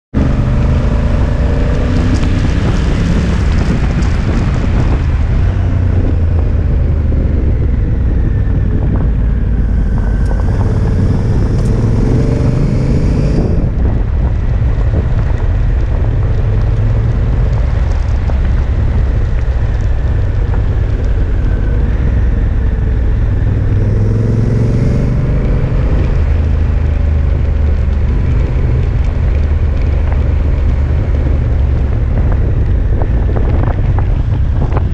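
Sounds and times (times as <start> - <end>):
motorcycle engine accelerating: 0.1 - 34.9
wind rumble on microphone: 0.1 - 34.9
tyres crackling on gravel: 0.3 - 7.0, 13.5 - 23.4, 25.2 - 34.9.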